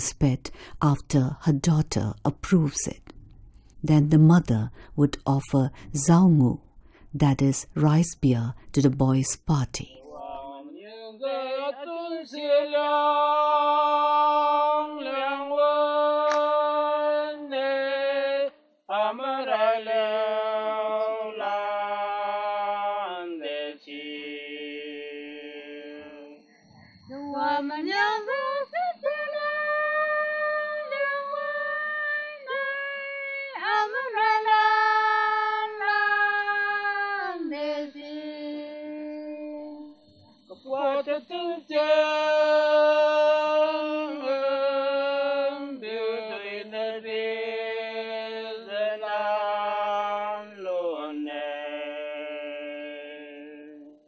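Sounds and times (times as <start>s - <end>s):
person singing unaccompanied: 27.0s - 54.0s.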